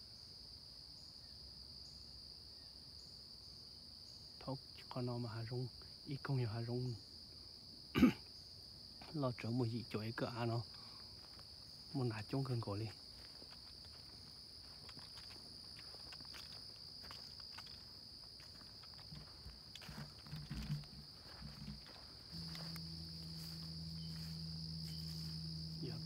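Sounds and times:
high-pitched insect chorus: 0.0s - 26.0s
footsteps in undergrowth: 11.0s - 26.0s
steady low hum: 19.1s - 26.0s.

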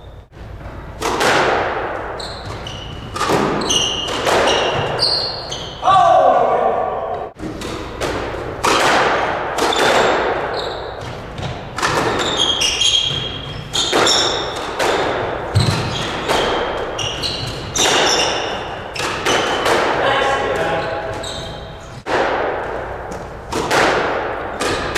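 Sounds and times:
squash ball hitting racquets and walls: 0.0s - 24.9s
sneakers squeaking on hardwood: 2.0s - 5.9s, 9.6s - 19.8s, 20.5s - 22.1s.

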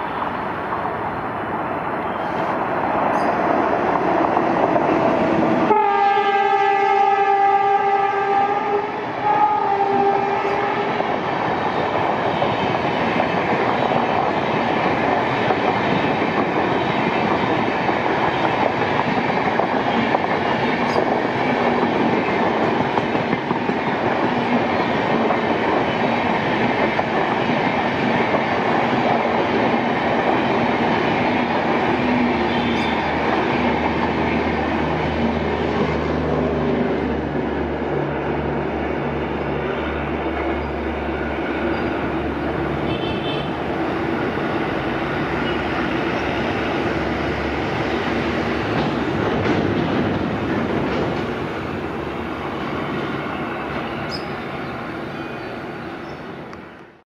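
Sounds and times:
passenger train coaches passing: 0.0s - 57.0s
train horn blasts: 5.6s - 11.0s, 32.4s - 33.1s, 42.8s - 43.6s.

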